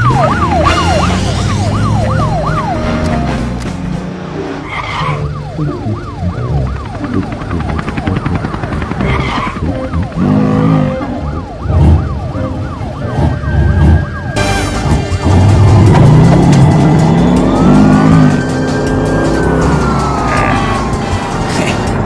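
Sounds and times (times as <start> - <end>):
cartoon siren yelping: 0.0 - 3.1, 4.7 - 14.4, 17.0 - 21.1.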